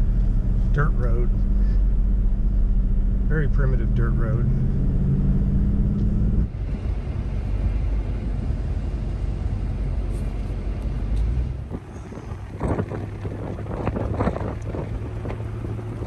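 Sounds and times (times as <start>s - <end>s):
truck engine and tyres rumbling: 0.0s - 16.0s.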